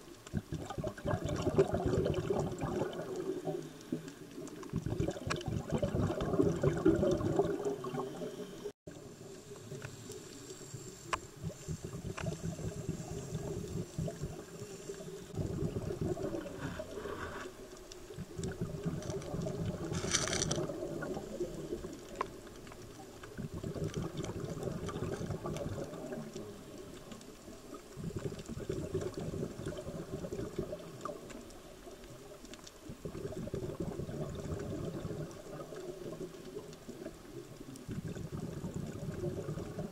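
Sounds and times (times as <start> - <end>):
regulator bubbles gurgling underwater: 0.0 - 39.9
short hiss: 9.4 - 13.7, 16.5 - 17.8.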